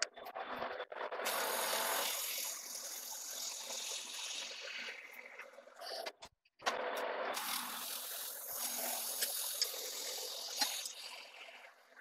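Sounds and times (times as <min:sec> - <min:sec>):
lathe cutting steel: 0:01.2 - 0:05.1.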